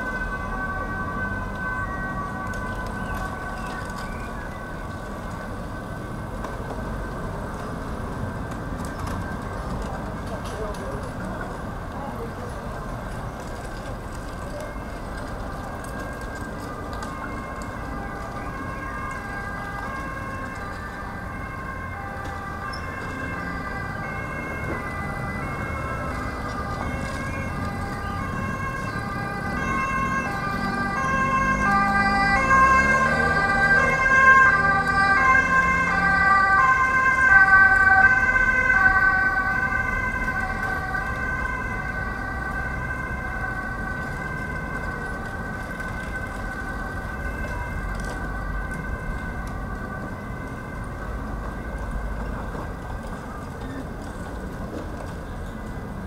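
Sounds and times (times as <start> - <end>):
two-tone emergency siren: 0.0 - 11.2, 13.4 - 53.6
low traffic hum: 0.0 - 56.0.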